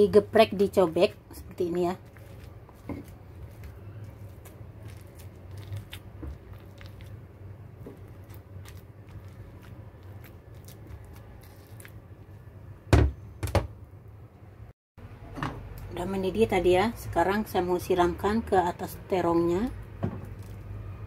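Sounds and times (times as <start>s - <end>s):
pestle squishing eggplant: 0.0s - 12.4s.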